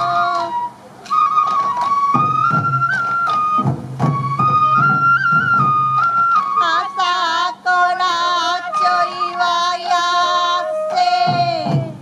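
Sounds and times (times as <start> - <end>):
bamboo flute: 0.0 - 12.0
taiko drum beats: 0.4 - 6.6, 11.2 - 12.0
person singing with heavy vibrato: 6.6 - 12.0.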